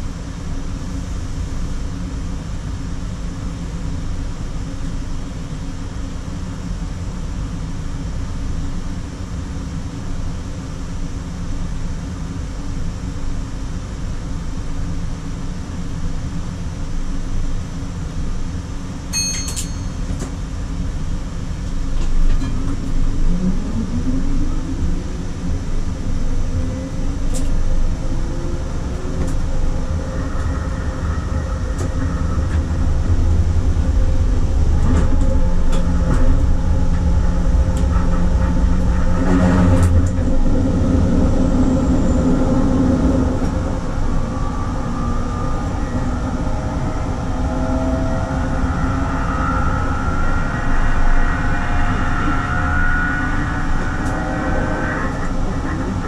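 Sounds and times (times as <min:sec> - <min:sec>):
tram rumbling on rails: 0:14.5 - 0:56.0
tram whine rising in pitch: 0:14.8 - 0:56.0.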